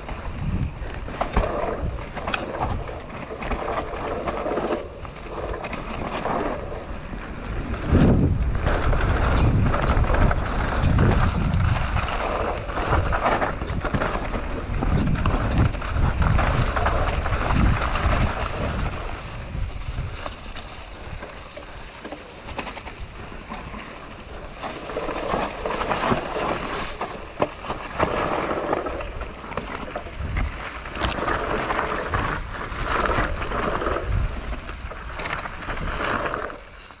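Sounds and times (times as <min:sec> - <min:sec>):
bike rattling and knocking: 0:00.0 - 0:37.0
tyres rolling over dirt and leaves: 0:00.0 - 0:37.0
wind rumble on microphone: 0:00.0 - 0:37.0.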